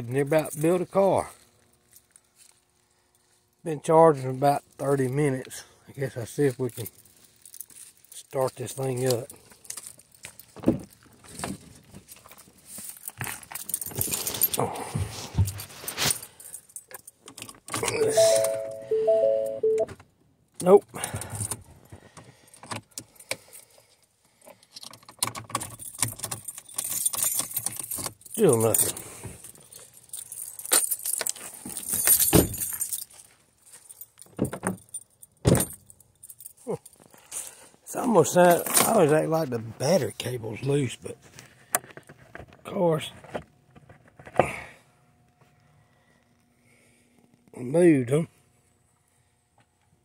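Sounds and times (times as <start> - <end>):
keys jangling: 12.6 - 14.8, 24.6 - 37.4
car warning chime beeps: 17.9 - 19.9.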